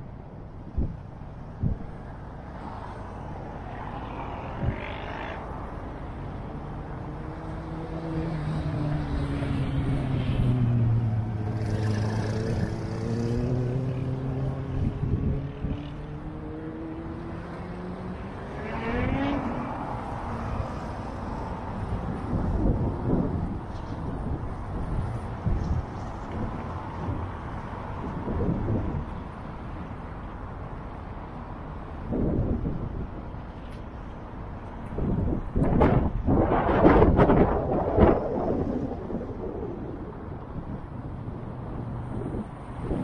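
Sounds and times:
traffic hum: 0:00.0 - 0:43.0
vehicle engine passing close: 0:07.2 - 0:27.2.

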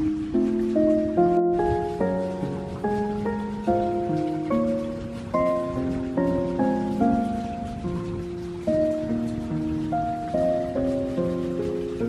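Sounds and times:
calm melody of sustained notes: 0:00.0 - 0:12.0
rain hiss: 0:00.0 - 0:12.0.

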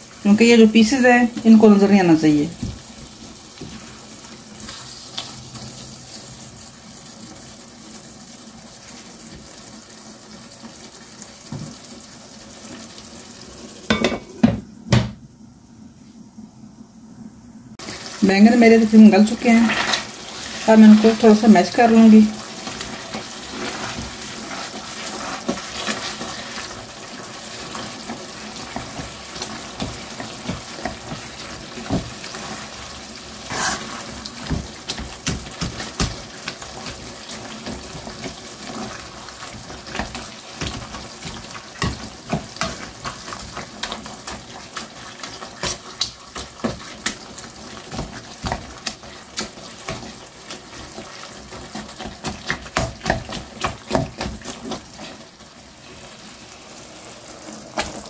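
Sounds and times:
metal utensil scraping a wok: 0:33.4 - 0:34.2.

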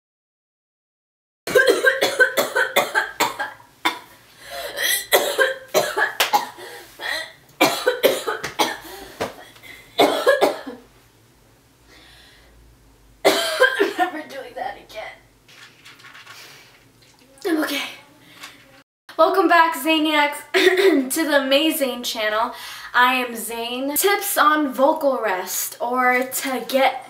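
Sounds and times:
woman coughing hard: 0:01.5 - 0:09.0, 0:10.0 - 0:10.9, 0:13.2 - 0:14.2, 0:20.6 - 0:21.0.

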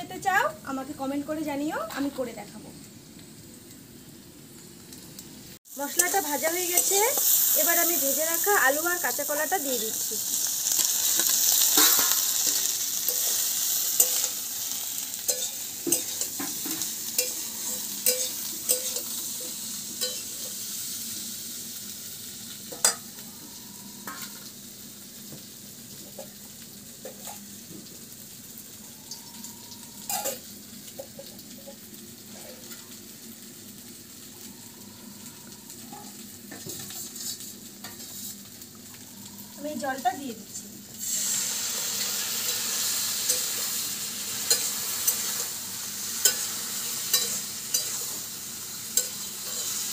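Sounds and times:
food sizzling in hot oil: 0:00.0 - 0:49.9
metal spatula scraping wok: 0:05.9 - 0:08.2, 0:10.7 - 0:20.7, 0:36.7 - 0:38.5, 0:41.2 - 0:49.9.

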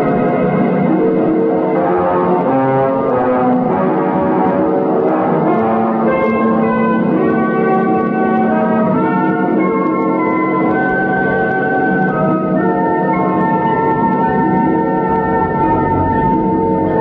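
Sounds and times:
organ chords: 0:00.0 - 0:17.0.

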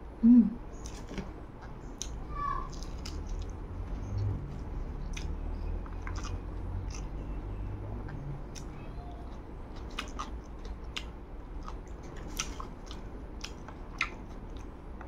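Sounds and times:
low steady hum: 0:00.0 - 0:15.0
person chewing food: 0:00.8 - 0:15.0
wet mouth clicks and smacks: 0:05.1 - 0:07.1.

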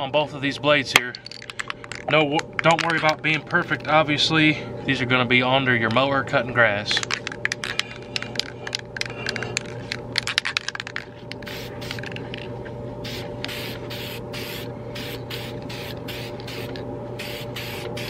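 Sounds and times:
spray can hissing in bursts: 0:13.1 - 0:18.0.

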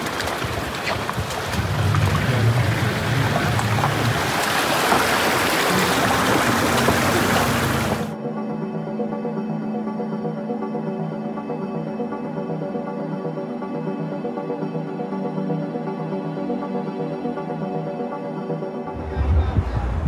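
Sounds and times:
background music: 0:01.1 - 0:20.0
loud rushing noise with low rumble: 0:01.5 - 0:04.9, 0:18.9 - 0:20.0.

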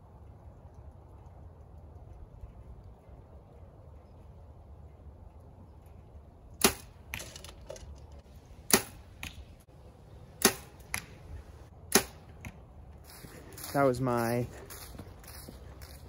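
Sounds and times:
arrow striking target: 0:06.6 - 0:07.8, 0:08.6 - 0:09.5, 0:10.4 - 0:11.3, 0:11.9 - 0:12.6.

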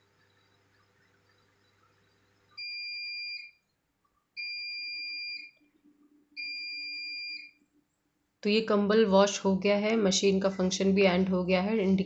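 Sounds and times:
washing machine beeps: 0:00.0 - 0:03.6, 0:04.4 - 0:05.6, 0:06.4 - 0:07.6.

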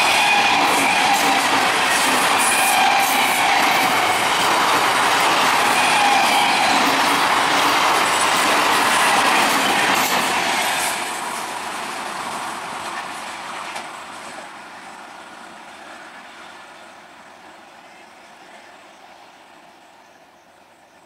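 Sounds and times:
train passing at speed: 0:00.0 - 0:21.0.

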